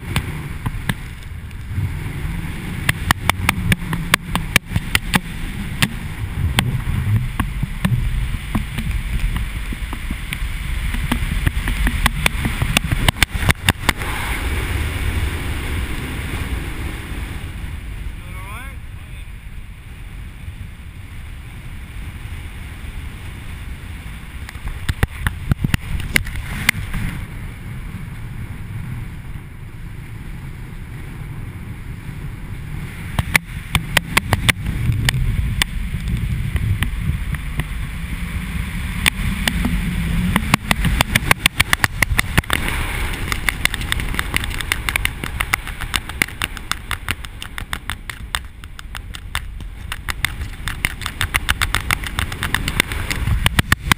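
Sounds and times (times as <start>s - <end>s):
wind buffeting microphone: 0.0s - 53.9s
rapid flapping clicks: 2.8s - 14.0s, 33.2s - 37.7s, 39.0s - 53.9s.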